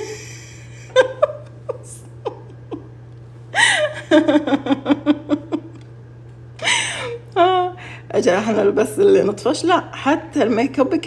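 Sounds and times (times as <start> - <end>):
woman laughing: 0.0 - 5.8, 6.6 - 7.8.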